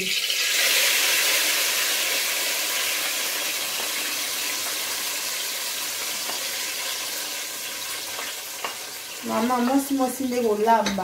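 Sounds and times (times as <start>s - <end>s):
puree sizzling in hot oil: 0.0s - 11.0s.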